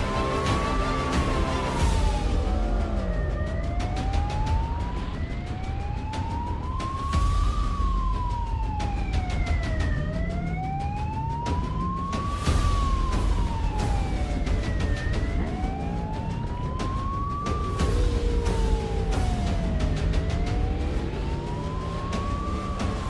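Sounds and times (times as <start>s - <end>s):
police siren wailing: 0.0s - 23.0s.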